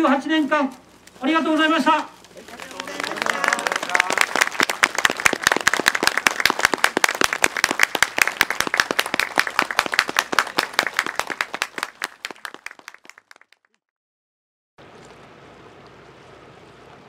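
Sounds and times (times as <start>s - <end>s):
crowd applauding: 2.4s - 13.8s.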